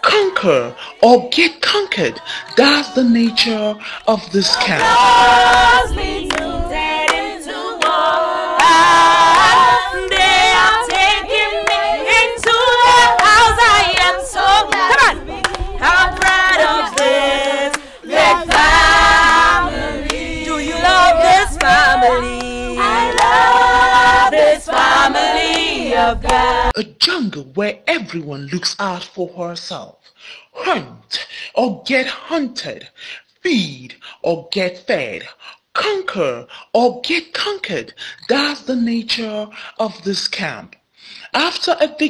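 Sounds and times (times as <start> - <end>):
women singing without instruments: 2.2 - 26.7.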